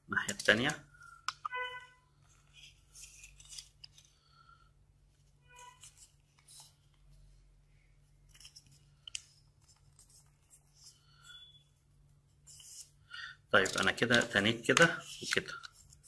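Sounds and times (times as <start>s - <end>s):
paper folding and creasing: 2.2s - 4.3s, 5.5s - 7.2s, 13.6s - 16.0s.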